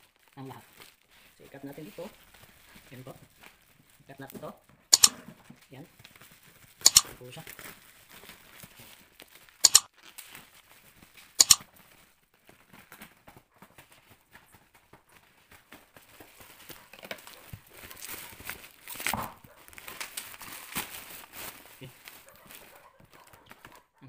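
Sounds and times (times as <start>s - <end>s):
bubble wrap crinkling: 0.0s - 4.4s, 5.9s - 13.0s, 15.4s - 23.8s
scissors cutting: 5.0s - 5.2s, 6.9s - 7.1s, 9.6s - 9.9s, 11.4s - 11.6s
small ticks: 9.6s - 9.9s, 11.4s - 11.6s.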